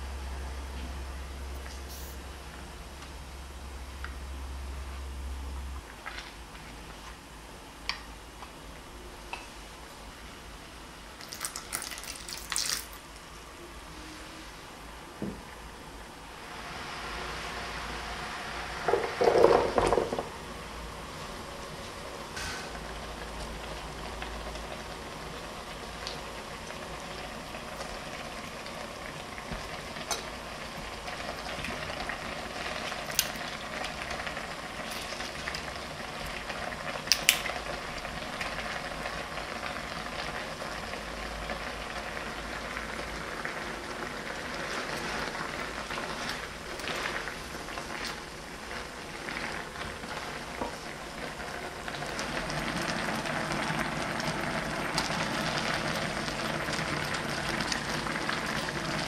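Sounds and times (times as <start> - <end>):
sauce simmering and bubbling: 11.2 - 13.0, 22.8 - 59.0.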